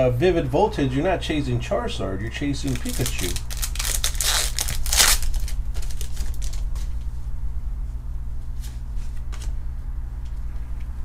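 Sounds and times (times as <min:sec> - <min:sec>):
low hum: 0:00.0 - 0:11.0
foil pack tearing open: 0:02.7 - 0:06.7
cards rustling and clicking: 0:02.7 - 0:06.9.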